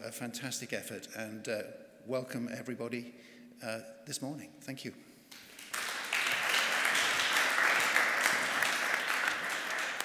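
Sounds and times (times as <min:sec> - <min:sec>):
audience applauding: 0:05.3 - 0:10.0.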